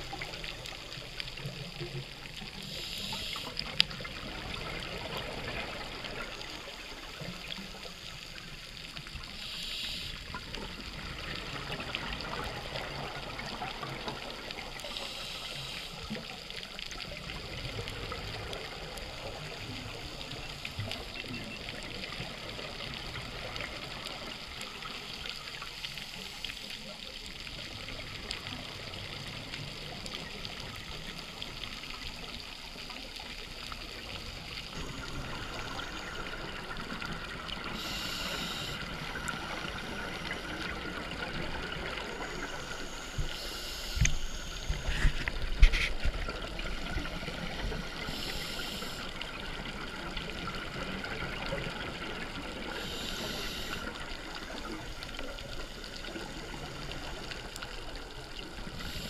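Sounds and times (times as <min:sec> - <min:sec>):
diver breathing hiss: 0:02.6 - 0:03.7, 0:09.3 - 0:10.3, 0:14.8 - 0:16.3, 0:37.7 - 0:40.6, 0:42.4 - 0:46.0, 0:47.9 - 0:49.2, 0:52.7 - 0:54.4, 0:58.7 - 0:59.0.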